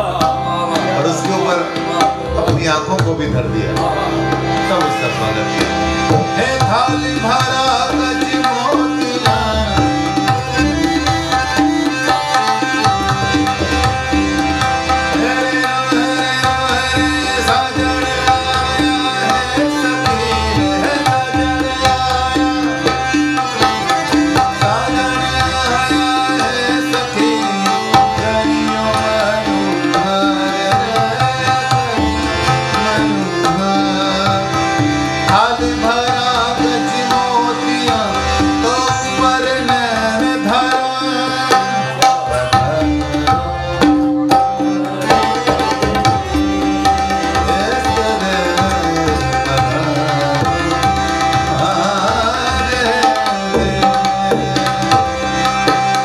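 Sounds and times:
person singing: 0:00.0 - 0:02.8, 0:14.9 - 0:55.2
harmonium drone and melody: 0:00.0 - 0:56.0
tabla rhythm: 0:00.0 - 0:56.0.

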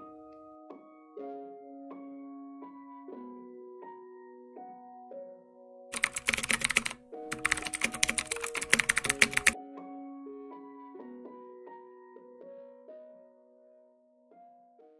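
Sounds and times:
soft piano music: 0:00.0 - 0:14.9
rapid keyboard typing: 0:05.9 - 0:09.6.

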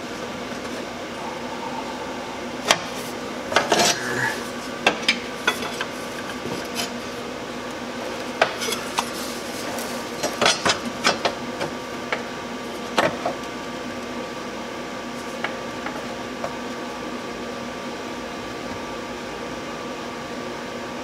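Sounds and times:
steady hum: 0:00.0 - 0:12.7.

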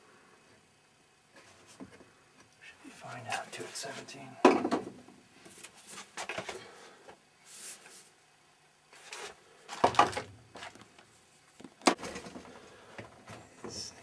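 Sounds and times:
pipe fittings rustles and clunks: 0:11.6 - 0:14.0.

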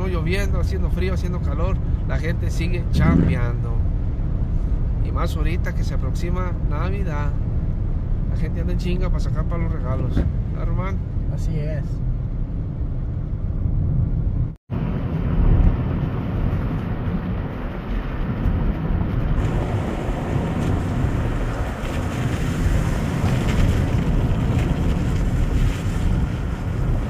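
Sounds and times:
road and engine rumble: 0:00.0 - 0:27.0
wind noise on microphone: 0:12.0 - 0:27.0.

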